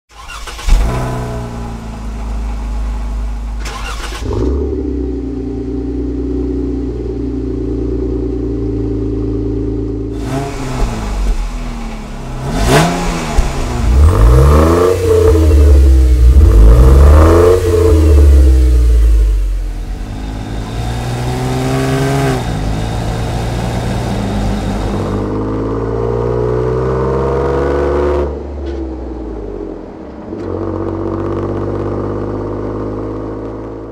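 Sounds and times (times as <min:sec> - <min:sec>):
engine revving: 0:00.1 - 0:28.4
engine idling: 0:00.2 - 0:25.3
vehicle accelerating away: 0:10.2 - 0:28.4.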